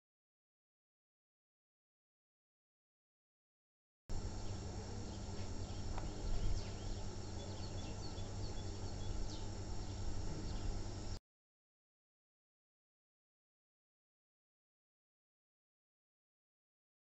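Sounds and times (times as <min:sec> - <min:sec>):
low rumble and hiss: 0:04.1 - 0:11.2
steady high drone: 0:04.1 - 0:11.2.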